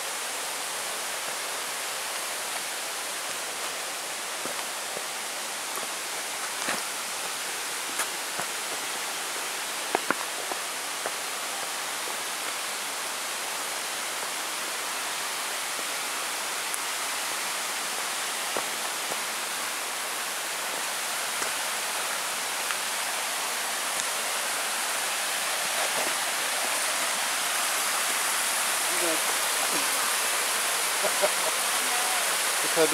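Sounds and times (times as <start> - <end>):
stream rushing: 0.0 - 32.9
footsteps on rocky steps: 4.4 - 5.1, 5.7 - 6.9, 7.8 - 8.9, 9.9 - 11.2.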